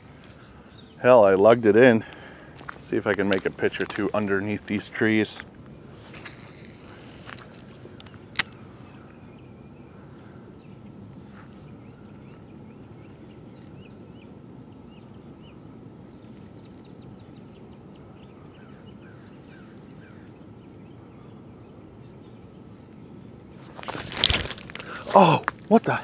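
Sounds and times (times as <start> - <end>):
low outdoor hum: 0.0 - 26.0
birds chirping and calling: 6.1 - 23.3
sharp click: 8.3 - 8.6.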